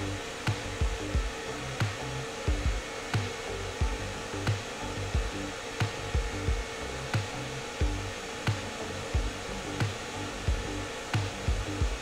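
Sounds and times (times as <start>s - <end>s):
background music with low thumps: 0.0s - 12.0s
hair dryer blowing: 0.0s - 12.0s.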